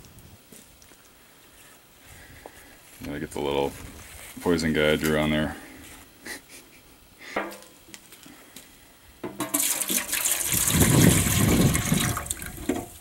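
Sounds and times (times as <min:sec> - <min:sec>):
liquid splashing into metal can: 0:09.2 - 0:13.0.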